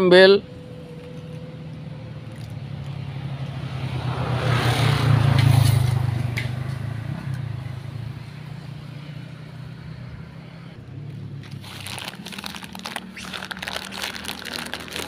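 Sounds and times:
motor vehicle passing: 0.0 - 15.0.

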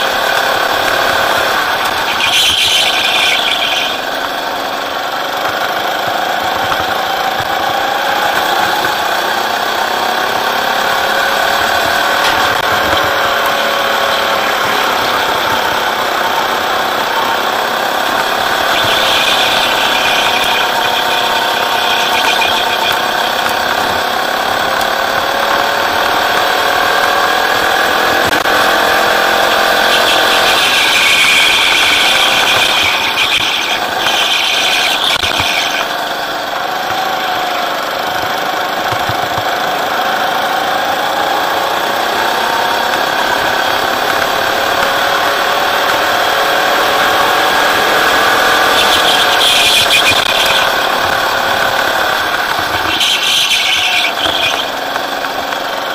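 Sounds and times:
go-kart engine: 0.0 - 55.9.

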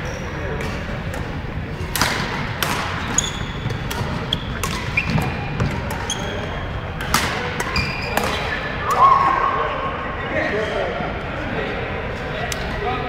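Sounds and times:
racket striking shuttlecock: 0.6 - 6.1, 7.0 - 8.4
shoes squeaking on wooden floor: 3.1 - 6.6.

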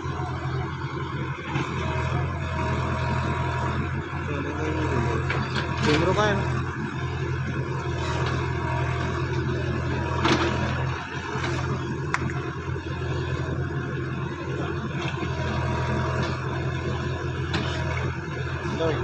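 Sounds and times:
backhoe digging soil: 0.0 - 19.0
tractor diesel engine running: 0.0 - 19.0.

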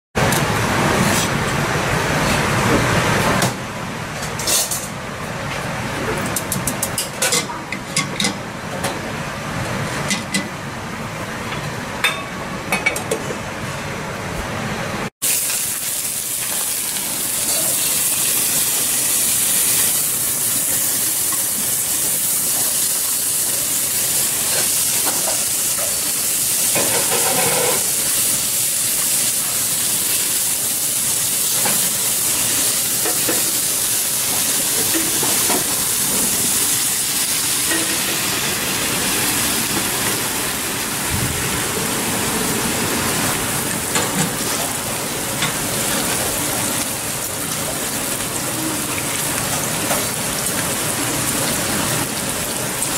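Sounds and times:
meat sizzling in a pan: 15.2 - 41.0, 43.6 - 52.9.

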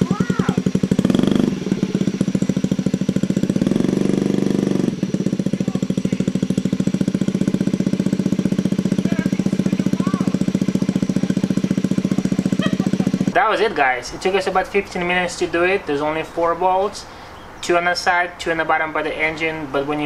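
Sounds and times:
scooter engine idling: 0.0 - 15.7.

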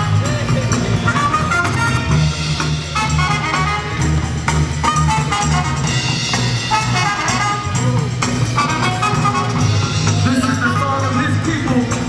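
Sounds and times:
pulsing bass beat: 0.0 - 12.0
brass horn lines: 1.0 - 4.2, 4.8 - 7.8, 8.6 - 10.0.

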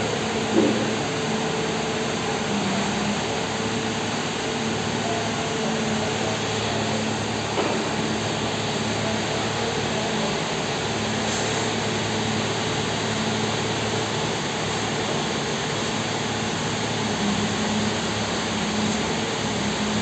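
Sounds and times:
diesel engine running: 0.0 - 20.0.

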